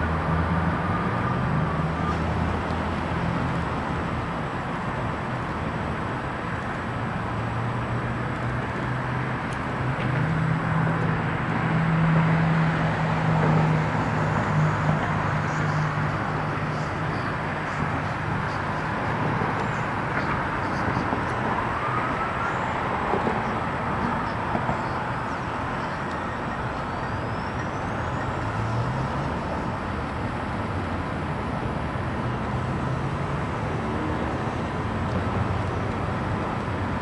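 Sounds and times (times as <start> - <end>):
vehicle traffic: 0.0 - 37.0.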